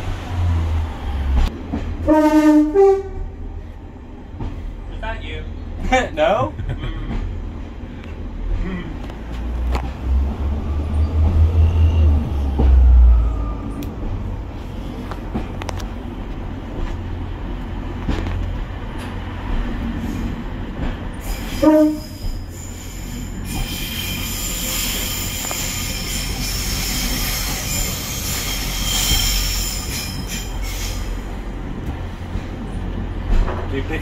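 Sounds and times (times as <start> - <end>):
diesel railbus engine rumble: 0.0 - 34.0
high wheel squeal: 21.2 - 31.3.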